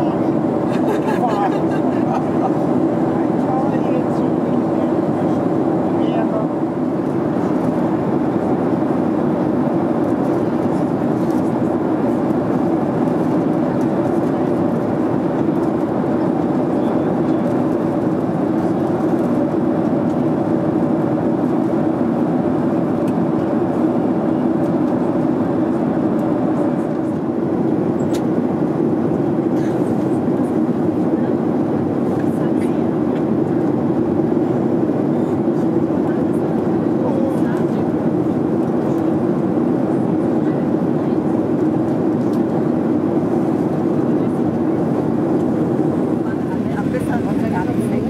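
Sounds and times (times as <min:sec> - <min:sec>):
jet engines droning: 0:00.0 - 0:48.0
rushing airflow: 0:41.8 - 0:48.0.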